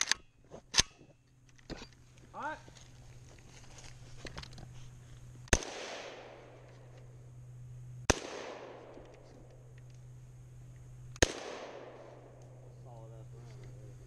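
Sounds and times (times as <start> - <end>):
rifle shots with echo: 5.5 - 6.7, 8.1 - 9.2, 11.2 - 12.6.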